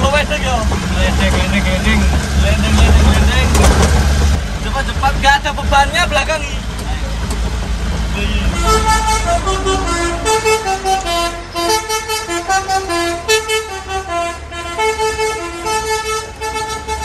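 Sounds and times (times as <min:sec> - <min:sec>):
truck engine rumble: 0:00.0 - 0:17.0
truck horn playing tune: 0:08.3 - 0:17.0.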